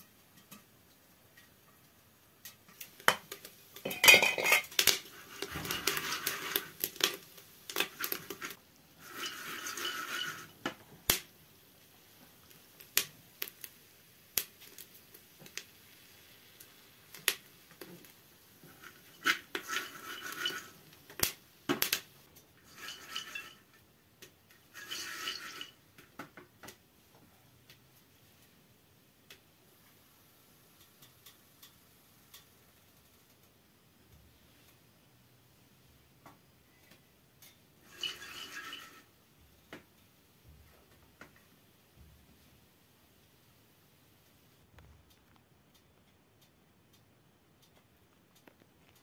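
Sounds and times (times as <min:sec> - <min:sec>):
popcorn kernels rattling in a pot: 0:02.2 - 0:11.2, 0:12.4 - 0:25.9, 0:37.4 - 0:39.1.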